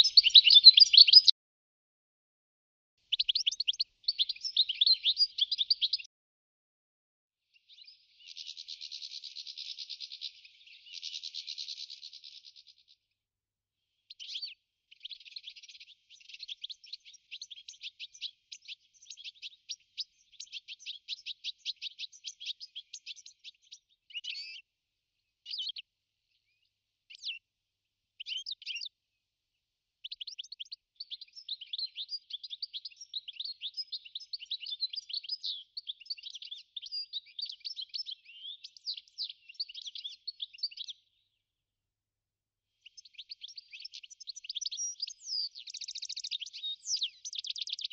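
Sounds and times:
finch singing: 0.0 - 1.3, 3.1 - 6.1, 7.6 - 12.8, 14.1 - 24.6, 25.5 - 25.8, 28.2 - 29.0, 30.0 - 41.3, 42.8 - 47.9.

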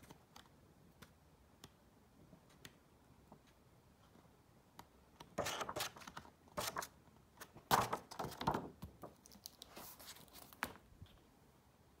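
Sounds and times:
paper rustling: 5.4 - 10.8.

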